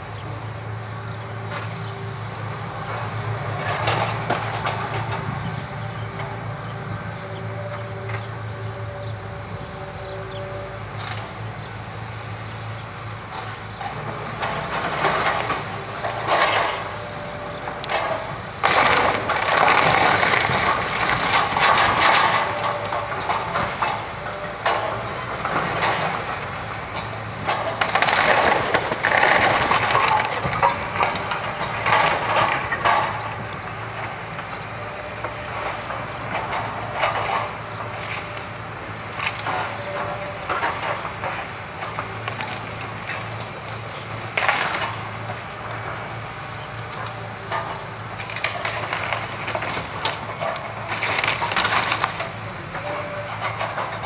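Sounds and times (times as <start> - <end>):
excavator diesel engine running: 0.0 - 54.0
wood cracking and splintering: 17.6 - 34.6, 35.2 - 46.1, 46.8 - 54.0
debris crashing down: 17.9 - 24.0, 27.5 - 33.3, 48.3 - 54.0.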